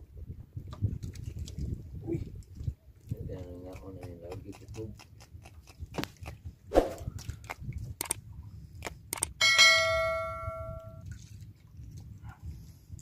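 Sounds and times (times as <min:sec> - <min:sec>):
bell-like notification ding: 0:09.4 - 0:11.0.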